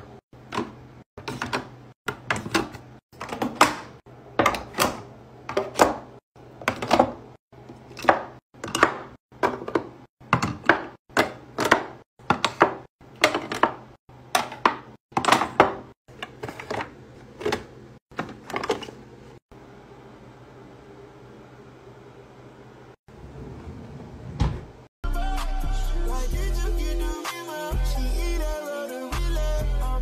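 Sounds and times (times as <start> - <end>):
jars and bottles knocking and clinking: 7.8 - 19.0.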